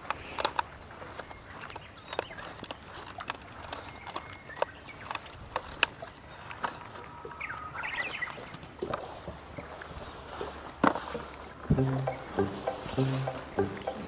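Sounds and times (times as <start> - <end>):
birds calling: 0.2 - 8.6, 11.8 - 14.0
sharp ticks and taps: 11.7 - 14.0.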